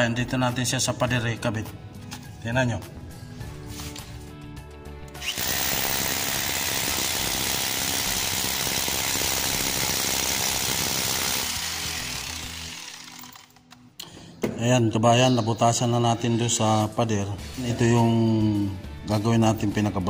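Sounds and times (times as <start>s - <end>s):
power drill boring into concrete: 5.1s - 13.7s.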